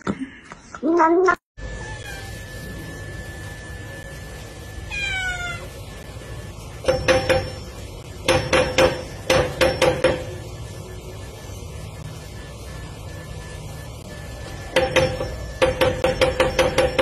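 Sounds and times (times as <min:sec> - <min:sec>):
cat meowing: 0:04.9 - 0:05.7.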